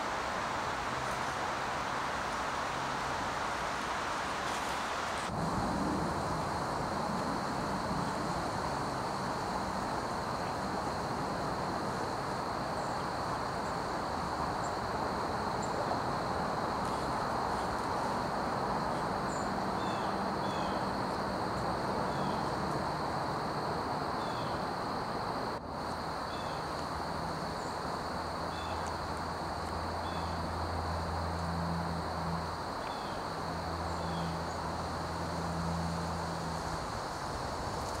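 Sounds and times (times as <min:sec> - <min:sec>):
steady hiss: 0:00.0 - 0:38.0
low engine-like hum: 0:05.3 - 0:37.9.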